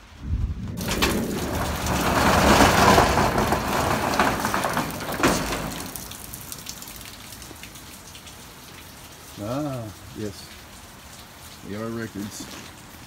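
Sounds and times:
rain falling: 0.0s - 13.0s
steel roll-up door rattling: 0.8s - 6.5s.

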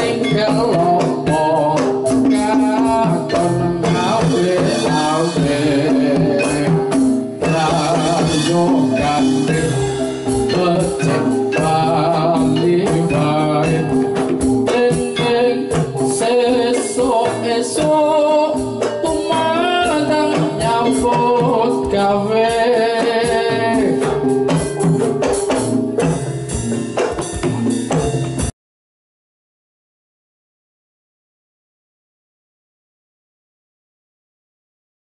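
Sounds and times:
person singing: 0.0s - 25.2s
hand drum beating rhythm: 0.0s - 28.5s.

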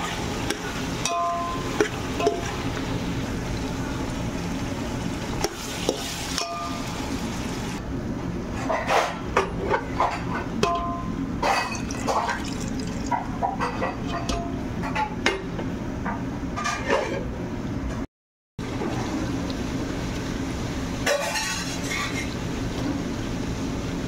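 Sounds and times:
cooking hiss: 0.0s - 7.8s, 18.6s - 24.0s.

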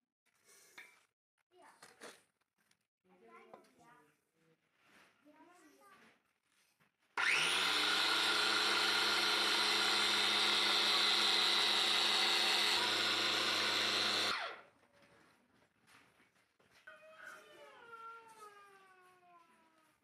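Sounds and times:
electric grain grinder running: 7.2s - 14.6s
motor winding down: 7.2s - 14.6s.

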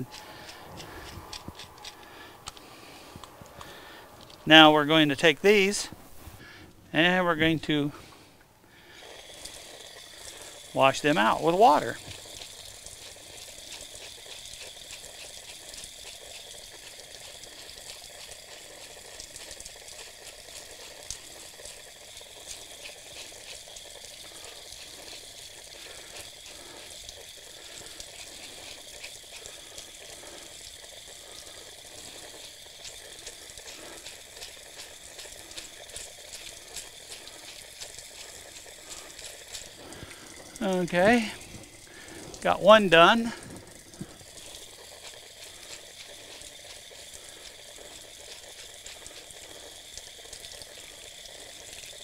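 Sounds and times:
tap water running and splashing: 0.0s - 52.0s.

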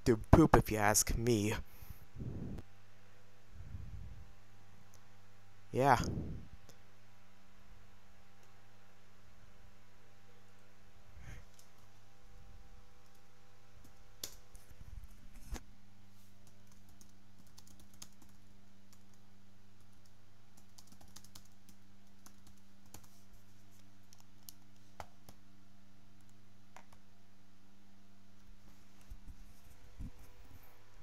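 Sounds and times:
steady low hum: 0.0s - 31.0s
computer keyboard typing: 16.4s - 19.2s, 19.8s - 23.2s, 24.0s - 25.4s.

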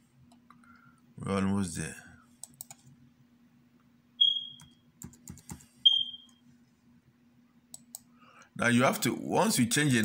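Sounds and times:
keyboard and mouse clicks: 2.4s - 2.9s, 4.6s - 6.1s
short high-pitched beeps: 4.2s - 4.7s, 5.8s - 6.4s.

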